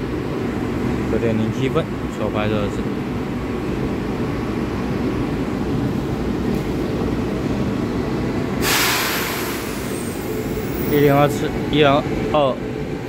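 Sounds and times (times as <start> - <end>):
electric locomotive humming: 0.0 - 13.0
compressed air hiss: 8.6 - 11.2.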